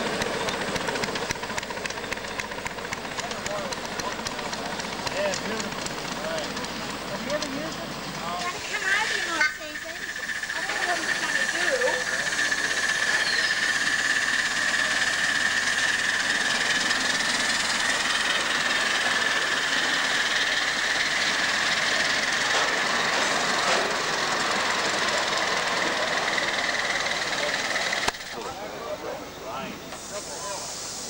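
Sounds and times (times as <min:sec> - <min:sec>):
steam hiss and running noise: 0:00.0 - 0:28.4, 0:29.9 - 0:31.0
thin high tone: 0:08.2 - 0:20.2.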